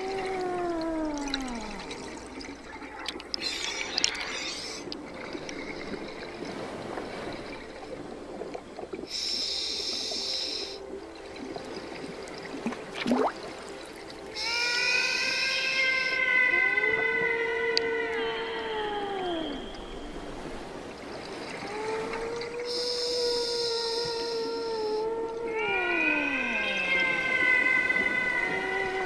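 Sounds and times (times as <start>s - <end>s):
bubbling exhalations: 0.0s - 2.3s
hissing inhalation through regulator: 9.1s - 10.9s, 22.6s - 25.0s.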